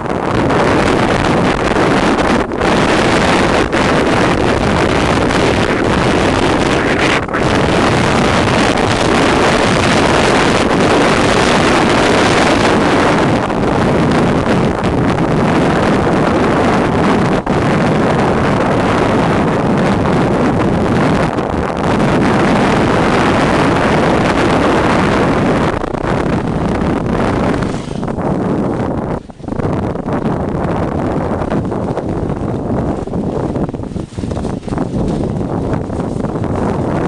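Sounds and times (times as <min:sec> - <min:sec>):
wind rushing on microphone: 0:00.0 - 0:37.0
toboggan sliding over snow: 0:00.2 - 0:37.0.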